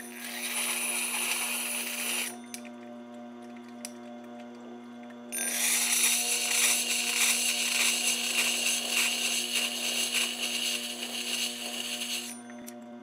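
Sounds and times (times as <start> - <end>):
metal scraping on grinding stone: 0.0 - 2.4, 5.4 - 12.6.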